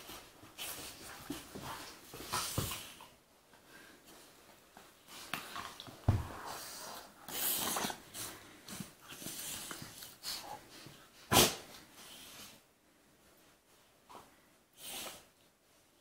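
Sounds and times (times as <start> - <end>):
dogs scuffling and huffing: 0.0 - 12.6.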